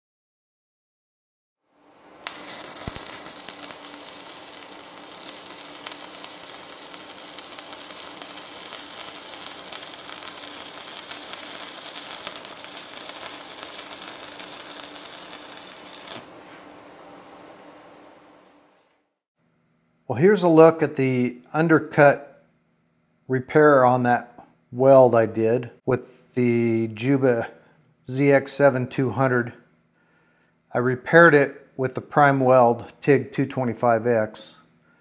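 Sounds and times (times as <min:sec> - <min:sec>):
welding arc crackling and sizzling: 0:02.2 - 0:16.4.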